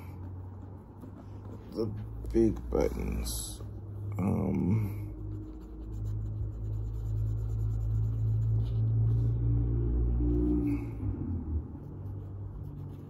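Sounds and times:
steady low rumble: 0.0 - 13.0
cotton swab rubbing metal: 5.2 - 9.1.

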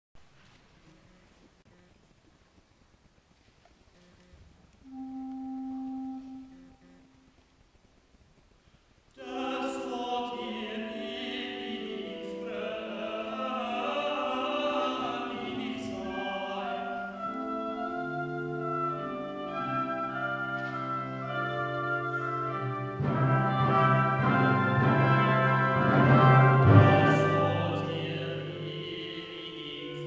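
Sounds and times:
choir singing with instruments: 9.2 - 30.0.

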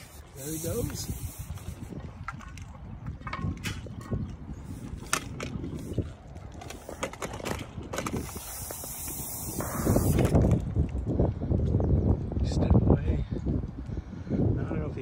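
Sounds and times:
low rumbling handling noise: 0.8 - 11.2.

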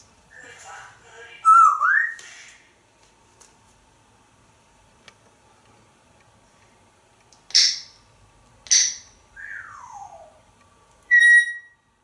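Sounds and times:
parrot whistle: 1.4 - 2.2, 8.7 - 10.4, 11.1 - 11.8
parrot squawks: 11.1 - 11.8.

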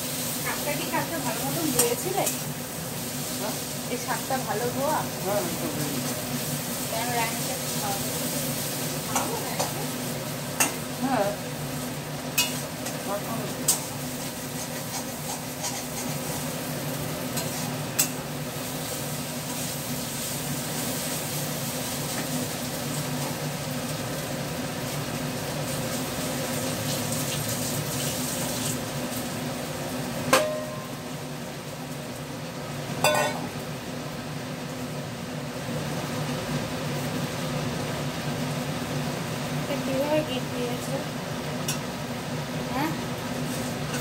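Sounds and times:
food sizzling in a pan: 0.0 - 44.0
metal clanks on pan: 12.4 - 13.0, 17.4 - 18.2, 30.3 - 31.1, 33.0 - 33.6, 41.6 - 41.9
metal spatula stirring: 13.7 - 16.4, 33.0 - 33.4.

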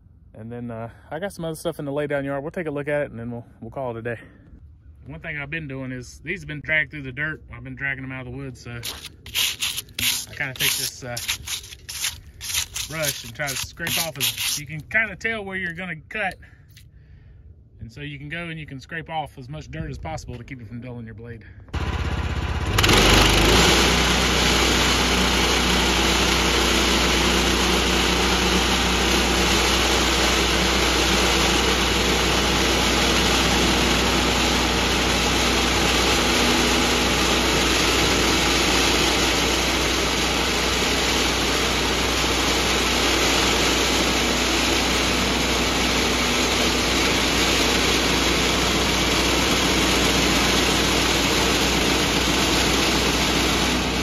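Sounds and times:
bandsaw mill cutting log: 8.8 - 14.8, 21.8 - 54.0.

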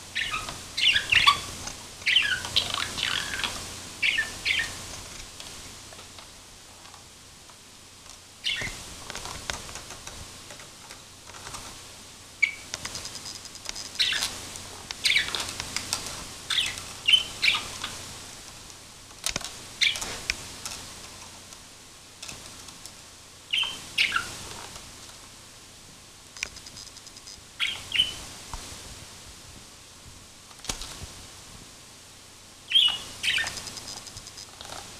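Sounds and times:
budgerigar chirping: 0.2 - 1.5, 2.1 - 4.8, 8.4 - 8.8, 14.0 - 14.2, 15.0 - 15.4, 16.5 - 17.7, 23.5 - 24.3, 27.6 - 28.2, 32.7 - 33.6.

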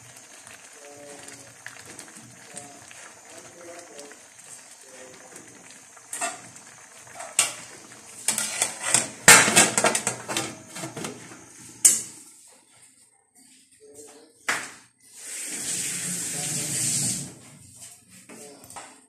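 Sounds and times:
metal pot lid clattering on pan: 8.2 - 10.5.

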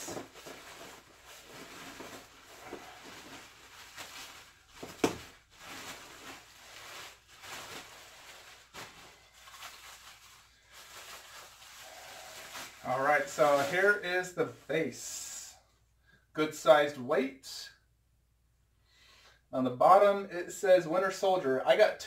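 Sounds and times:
plastic wrapping crinkling: 0.0 - 14.0.

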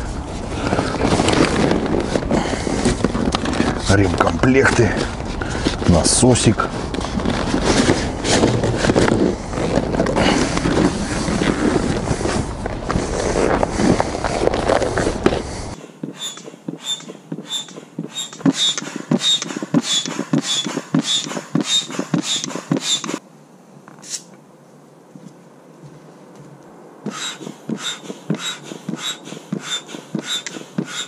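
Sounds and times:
fabric and carry bag rustling: 0.0 - 15.8
foot pump squeaking strokes: 15.2 - 23.2, 27.0 - 31.0.

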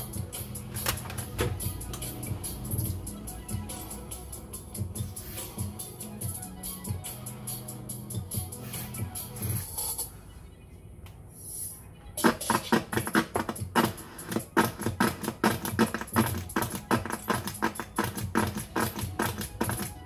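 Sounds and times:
rapid clicking and crackling: 12.2 - 20.0.

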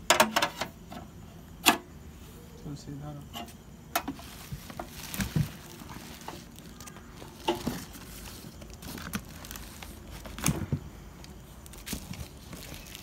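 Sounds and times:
plastic wrapping rustling: 4.2 - 13.0.

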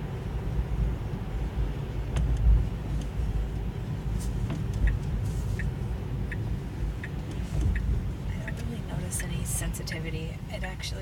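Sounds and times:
road and tyre rumble: 0.0 - 11.0
faint clicks and ticks: 4.5 - 9.8.

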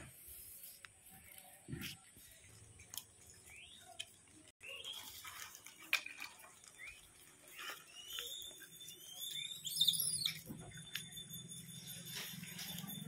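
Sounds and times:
high chirping calls: 6.7 - 12.8.

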